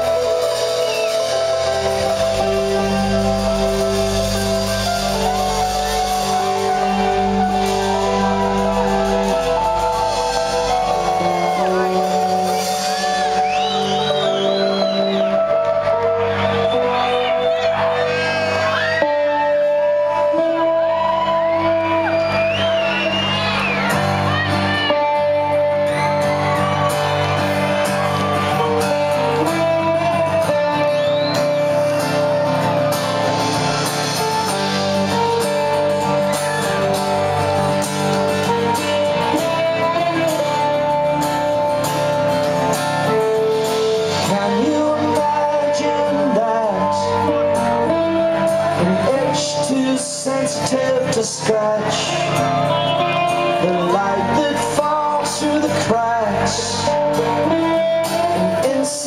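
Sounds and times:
acoustic guitar strumming: 0.0s - 59.0s
rock band playing: 0.0s - 59.0s
person singing: 28.4s - 59.0s.

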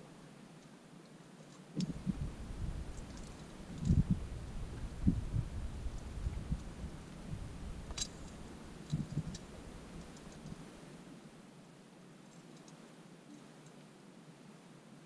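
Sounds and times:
handling thumps and ticks: 7.8s - 10.7s.

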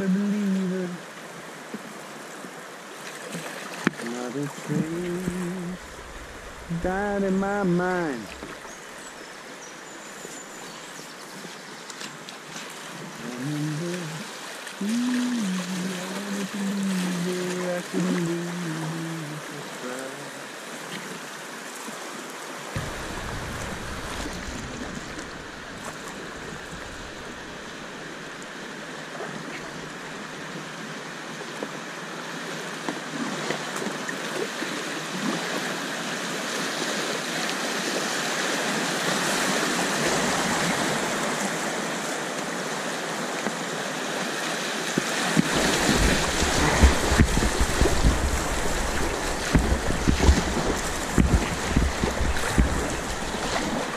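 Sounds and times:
river water rushing: 0.0s - 53.9s
wind buffeting microphone: 5.0s - 8.7s, 22.8s - 28.4s, 45.4s - 53.9s.

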